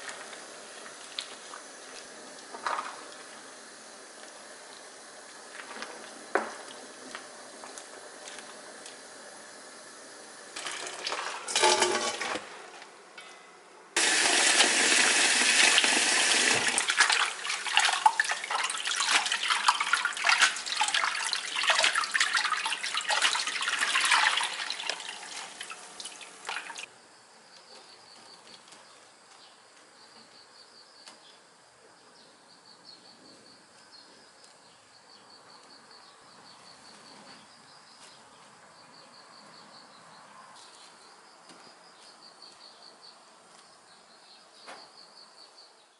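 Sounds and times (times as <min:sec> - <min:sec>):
faint insect chirping: 0:00.0 - 0:10.6, 0:17.1 - 0:45.9
tap water splashing into basin: 0:14.0 - 0:26.9.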